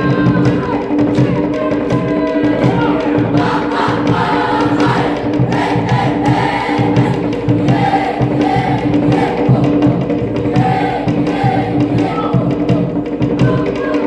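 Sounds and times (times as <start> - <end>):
percussion strokes: 0.0 - 14.0
children singing in chorus: 2.4 - 12.7.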